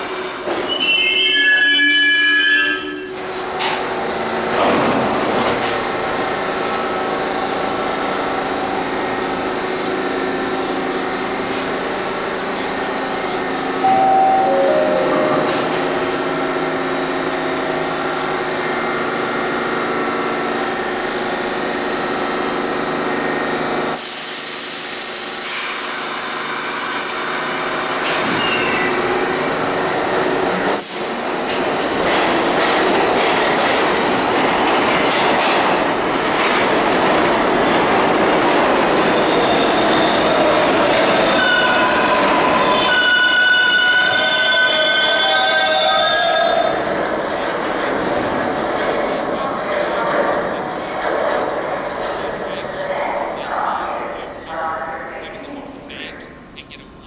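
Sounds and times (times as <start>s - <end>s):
wheels rumbling on rail: 2.9s - 24.1s, 27.3s - 54.3s
train motors humming: 3.1s - 26.4s
wheel squeals: 41.0s - 46.9s.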